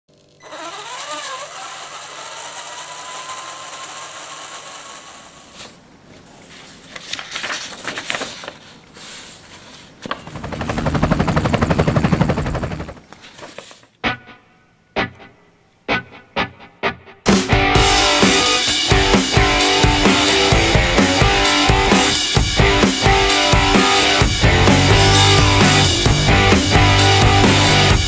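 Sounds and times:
helicopter rotor chop: 10.1s - 13.1s, 24.4s - 28.0s.

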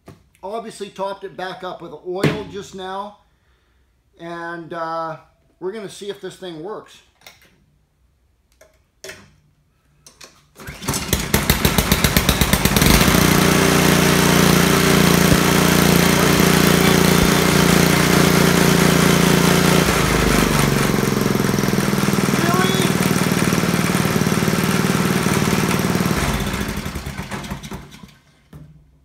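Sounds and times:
small engine pull-started: 10.5s - 28.5s
small engine running: 10.6s - 28.2s.

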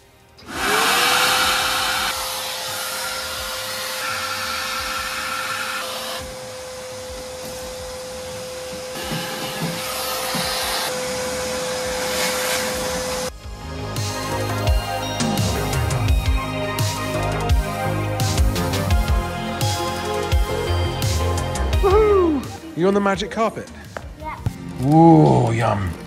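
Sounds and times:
vacuum cleaner running: 0.0s - 13.4s.

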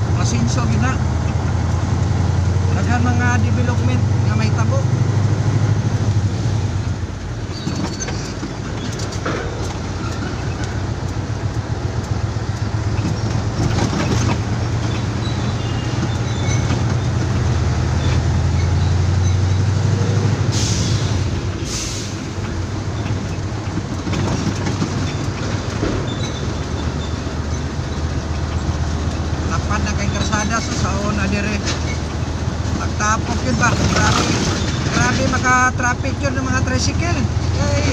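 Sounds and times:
truck diesel engine running: 0.0s - 37.9s
short air hisses: 20.5s - 22.2s.

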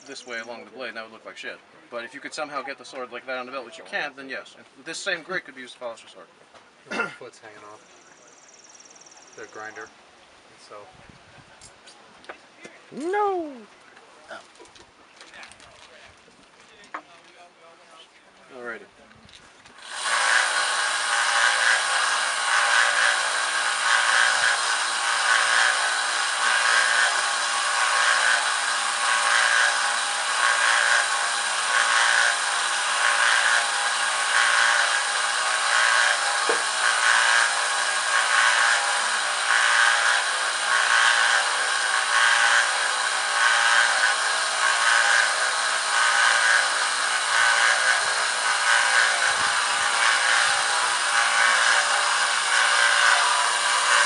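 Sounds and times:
belt grinder grinding blade: 19.8s - 54.0s.

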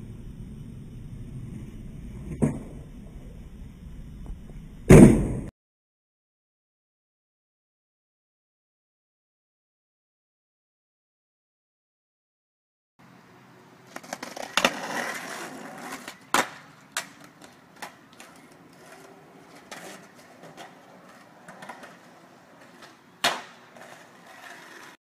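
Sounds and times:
skateboard wheels rolling on pavement: 0.0s - 5.5s, 13.0s - 25.0s
skateboard clacks: 13.9s - 25.0s.

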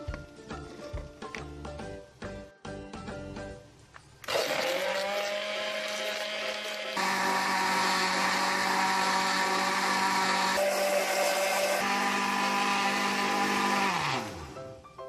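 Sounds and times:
blender motor running: 4.2s - 14.7s.

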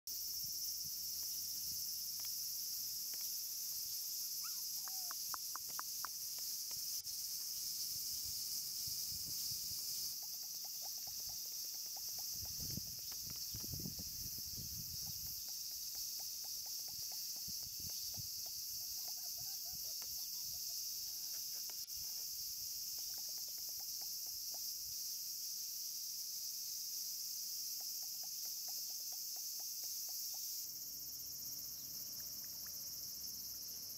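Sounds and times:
insects chirping: 0.1s - 33.9s
faint rapid chirps: 3.8s - 21.3s.

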